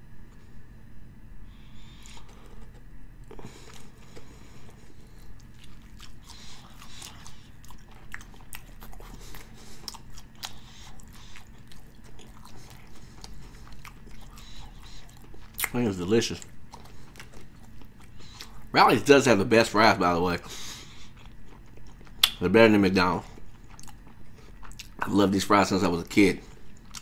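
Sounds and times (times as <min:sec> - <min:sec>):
person chewing crunchy food: 0:01.5 - 0:25.2, 0:26.0 - 0:27.0
wet mouth clicks: 0:15.0 - 0:15.8, 0:22.1 - 0:22.4.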